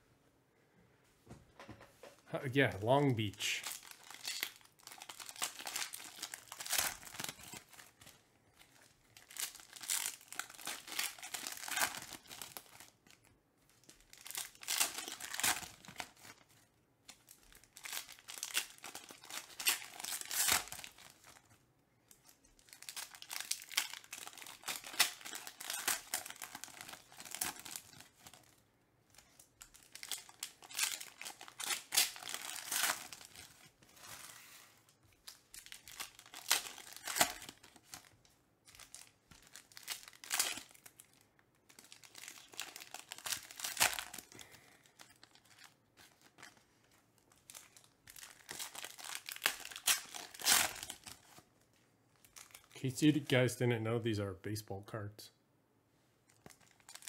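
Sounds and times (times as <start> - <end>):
foil wrappers tearing and crinkling: 3.2 - 8.1, 8.8 - 13.2, 13.8 - 16.4, 17.1 - 21.4, 22.2 - 28.6, 29.6 - 34.3, 35.3 - 38.1, 38.7 - 46.6, 47.3 - 51.4, 56.4 - 57.0.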